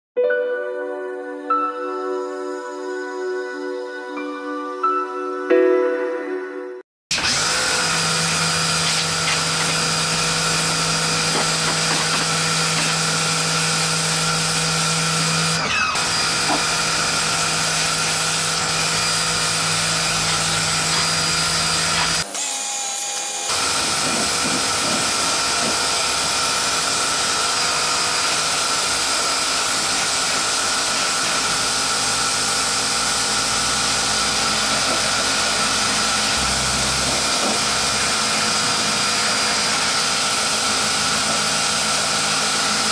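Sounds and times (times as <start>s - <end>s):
pressure washer whine: 7.1s - 42.9s
water jet spraying on pots: 7.2s - 22.3s, 23.5s - 42.9s.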